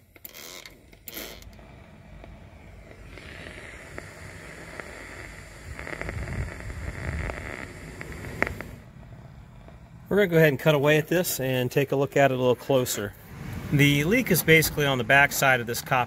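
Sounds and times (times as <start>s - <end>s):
ultrasonic detector hiss: 1.6s - 9.7s.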